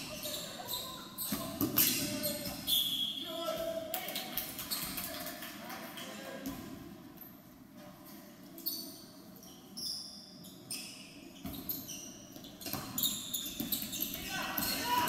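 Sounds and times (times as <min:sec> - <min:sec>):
sneakers squeaking: 0:00.0 - 0:03.8, 0:04.6 - 0:05.1, 0:08.5 - 0:15.0.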